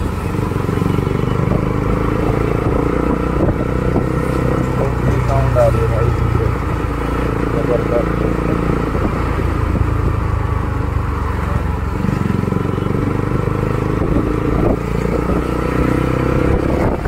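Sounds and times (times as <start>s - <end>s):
motorcycle engine bassy exhaust: 0.0s - 17.0s.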